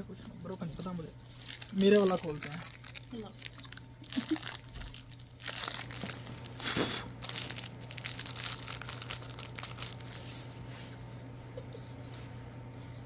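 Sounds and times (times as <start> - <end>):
plastic wrapper crinkling: 0.1 - 10.4
plastic wrapper ripping: 0.7 - 10.3.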